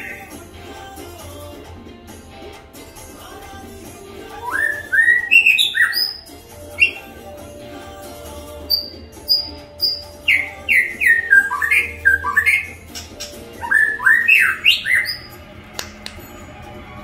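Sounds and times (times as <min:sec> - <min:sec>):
bird whistling: 0:00.0 - 0:00.3, 0:04.3 - 0:07.3, 0:08.7 - 0:15.4.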